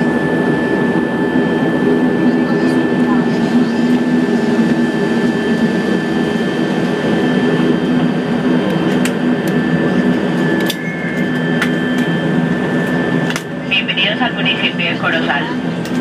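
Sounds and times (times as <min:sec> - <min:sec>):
turboprop engine and propeller drone: 0:00.0 - 0:16.0
thin high whine: 0:10.4 - 0:13.2.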